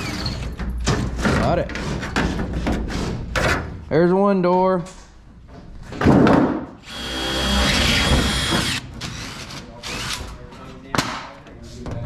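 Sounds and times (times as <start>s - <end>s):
cordless drill whine: 6.8s - 8.8s.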